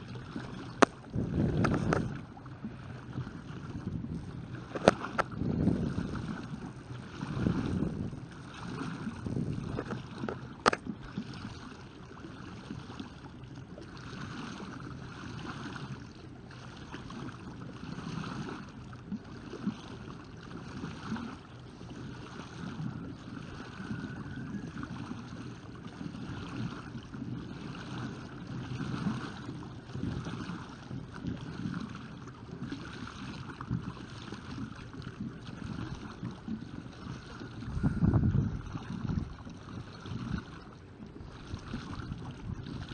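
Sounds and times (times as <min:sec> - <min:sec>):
wind buffeting microphone: 0:00.0 - 0:11.2, 0:22.6 - 0:32.0, 0:35.2 - 0:42.9
paddles splashing water: 0:00.0 - 0:42.9.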